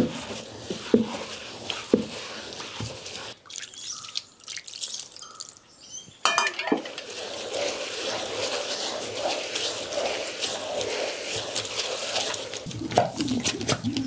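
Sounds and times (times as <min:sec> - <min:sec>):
water dripping and splattering: 0:03.3 - 0:05.6
stone grinder scraping: 0:06.4 - 0:13.8.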